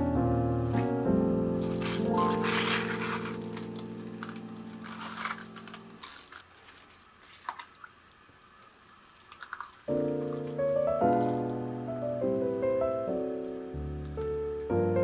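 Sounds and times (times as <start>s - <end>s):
soft background music: 0.0s - 6.4s, 9.8s - 15.0s
chopsticks stirring in water: 1.6s - 8.0s
small splashes and drips: 6.0s - 11.6s.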